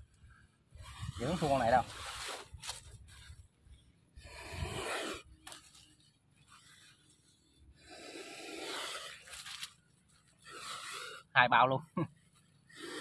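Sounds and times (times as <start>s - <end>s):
snake hissing: 4.2s - 5.8s, 6.5s - 11.7s, 12.6s - 13.0s.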